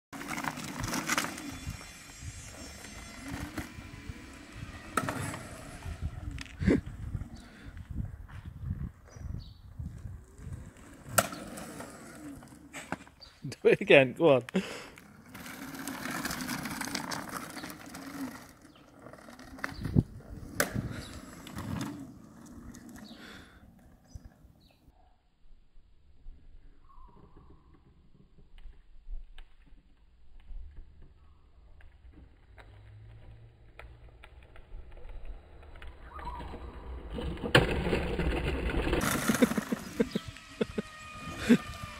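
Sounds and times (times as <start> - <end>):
electric go-kart humming and rumbling: 0.2 - 7.8, 9.1 - 13.4, 14.7 - 24.5, 30.2 - 41.9
electric motors whining: 0.6 - 6.6, 38.9 - 41.9.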